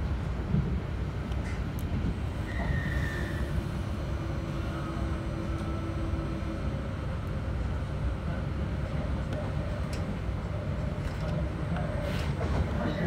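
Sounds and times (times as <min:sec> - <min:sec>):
train wheels rumbling on rail: 0:00.0 - 0:13.0
low steady tone: 0:03.5 - 0:08.5.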